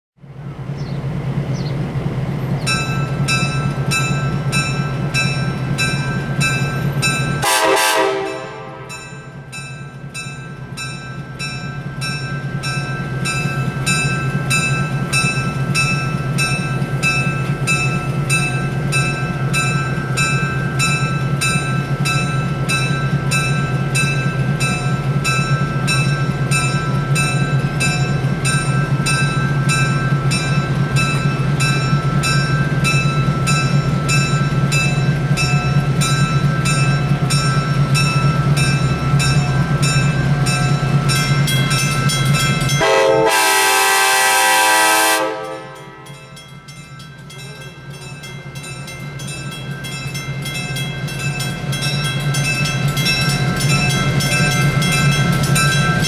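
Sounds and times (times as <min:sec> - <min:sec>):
diesel locomotive engine humming: 0:00.2 - 0:56.0
locomotive bell ringing: 0:02.7 - 0:56.0
train horn blast: 0:07.4 - 0:09.1, 0:42.8 - 0:46.2.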